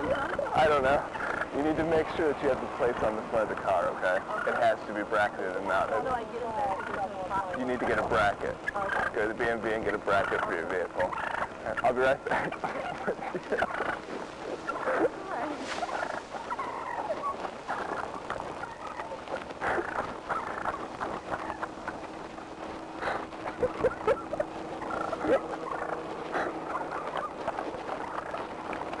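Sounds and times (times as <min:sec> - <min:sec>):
turkey gobbling: 0:00.0 - 0:29.0.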